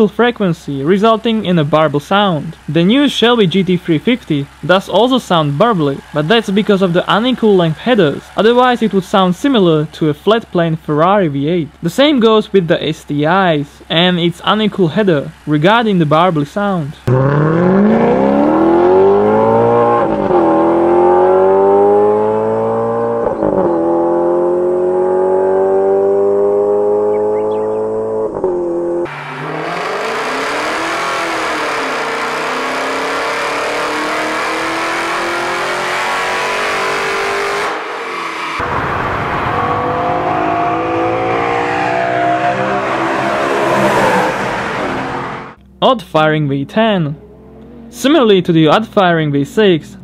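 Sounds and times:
engine under load on dyno: 1.1s - 10.2s, 13.8s - 45.6s
engine revving through gears: 17.0s - 45.6s, 47.2s - 48.2s.

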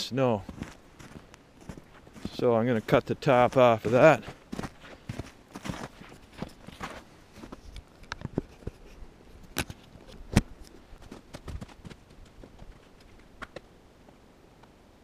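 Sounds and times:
footsteps in snow: 0.4s - 7.9s.

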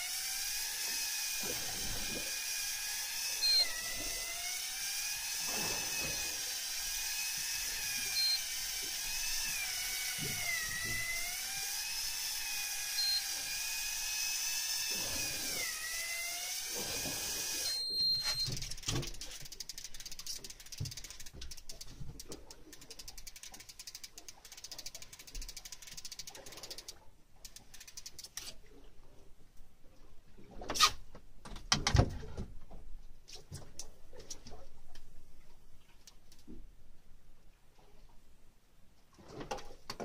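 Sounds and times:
electric reel motor whining: 0.0s - 21.3s
short high beeps: 3.4s - 3.8s, 8.1s - 8.5s, 13.0s - 13.3s, 17.6s - 18.7s.

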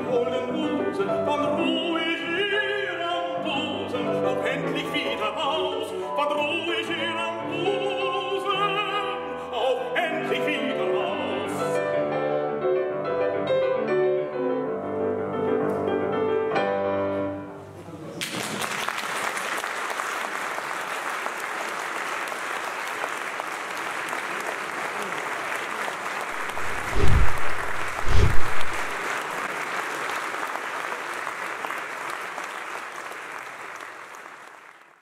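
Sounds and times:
audience applauding: 18.2s - 35.0s
dull low thumps: 26.4s - 29.0s.

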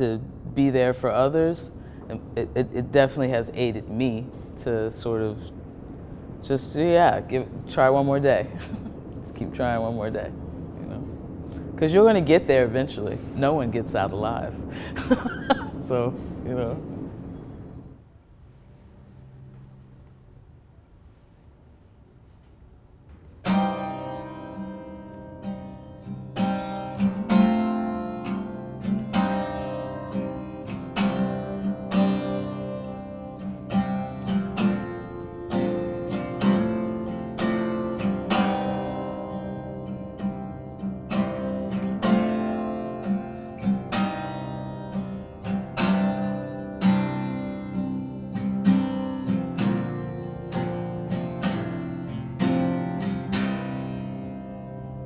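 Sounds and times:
acoustic guitar strumming: 23.4s - 55.0s.

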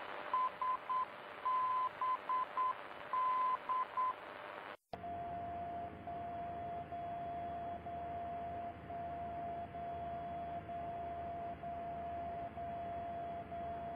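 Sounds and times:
radio receiver hiss: 0.0s - 4.8s
time signal tone with breaks: 0.0s - 13.9s.

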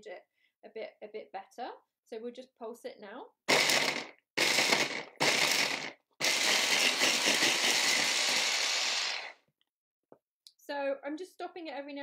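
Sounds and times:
hand blender motor chopping: 3.5s - 9.4s.

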